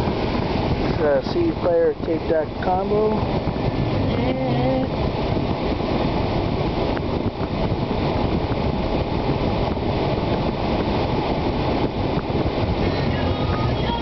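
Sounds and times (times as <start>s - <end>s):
air conditioning vents blowing: 0.0s - 14.0s
car engine running: 2.1s - 14.0s.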